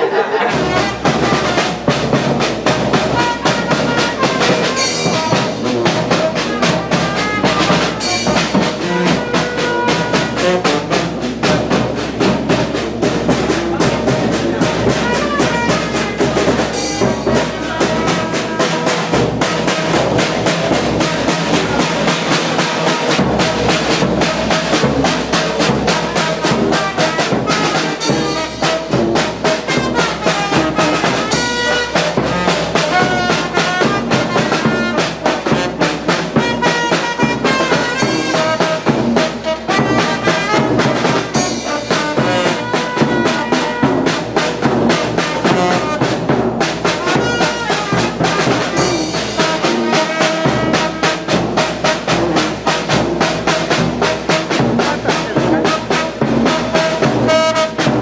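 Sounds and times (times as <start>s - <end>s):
snare drum: 0.0s - 58.0s
trombones: 0.0s - 58.0s
trumpets: 0.0s - 58.0s
cymbal: 0.5s - 54.8s
bass drum: 0.5s - 58.0s.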